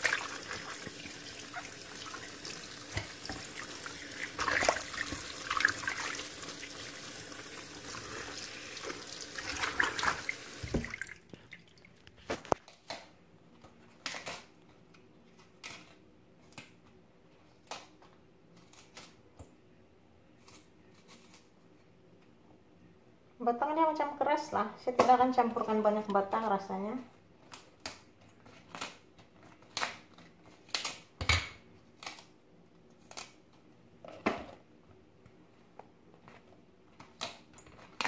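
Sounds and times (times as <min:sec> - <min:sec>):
water splashes: 0:00.0 - 0:12.0
tap running into sink: 0:02.8 - 0:03.6, 0:09.6 - 0:11.0.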